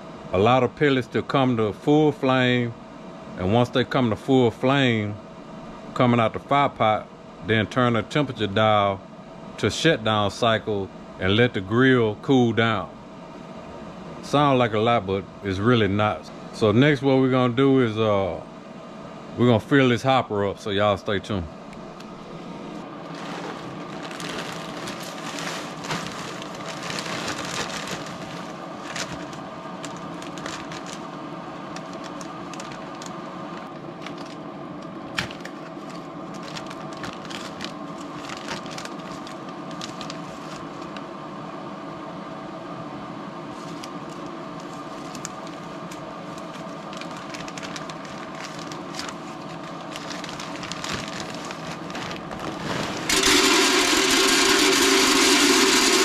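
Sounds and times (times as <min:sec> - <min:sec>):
fan humming: 0:00.0 - 0:56.0
pellets clattering into hopper: 0:23.1 - 0:29.4, 0:47.0 - 0:56.0.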